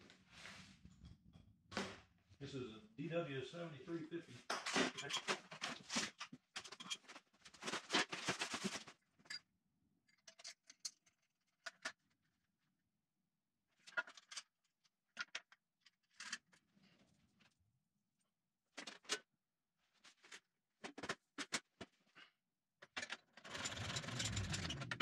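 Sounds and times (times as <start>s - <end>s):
metal parts clicking and knocking: 10.1s - 11.9s.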